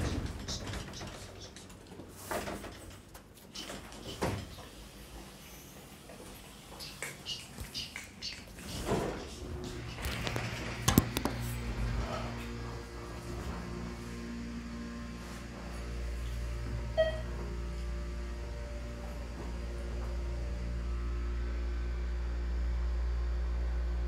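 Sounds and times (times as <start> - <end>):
lift humming: 0.0 - 24.0
short electronic chime: 17.0 - 17.3.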